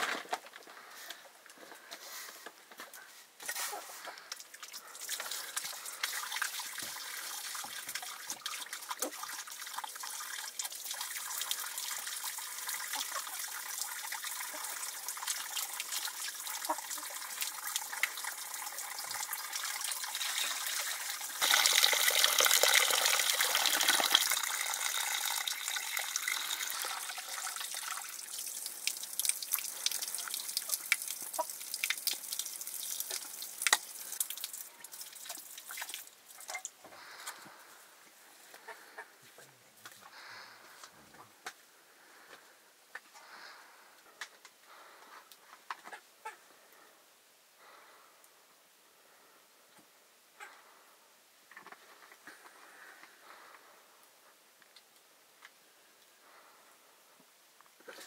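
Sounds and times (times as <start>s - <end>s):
water running and splashing: 4.5s - 36.7s.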